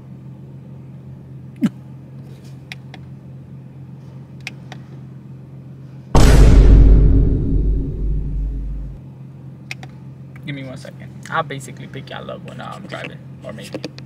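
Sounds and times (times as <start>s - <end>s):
short sharp sound: 6.2s - 9.0s.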